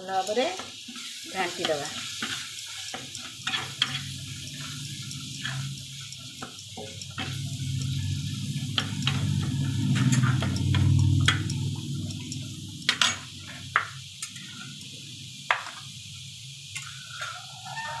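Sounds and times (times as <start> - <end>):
masala sizzling in oil: 0.0 - 18.0
low steady hum: 7.0 - 13.4.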